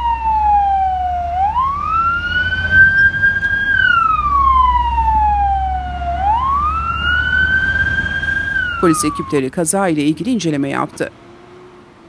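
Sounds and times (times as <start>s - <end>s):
ambulance siren wailing: 0.0s - 9.6s
low rumble: 0.3s - 8.8s.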